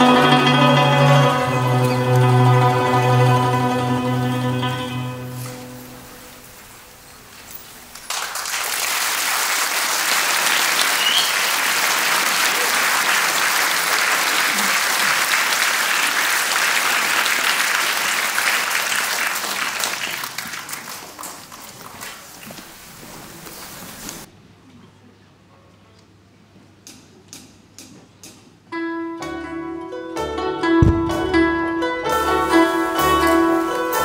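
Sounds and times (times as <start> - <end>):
audience applauding: 7.8 - 24.3.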